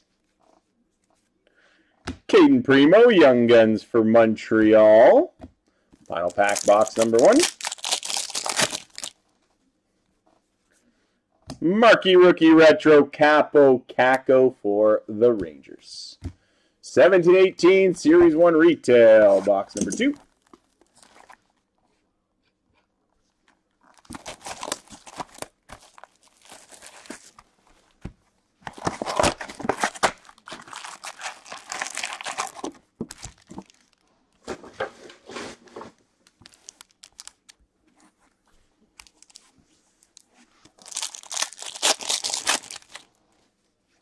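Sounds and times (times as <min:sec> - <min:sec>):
foil packs crinkling and ripping: 0:06.0 - 0:09.2, 0:23.9 - 0:27.4, 0:28.7 - 0:34.1, 0:36.3 - 0:37.6, 0:39.0 - 0:39.4, 0:40.1 - 0:43.1.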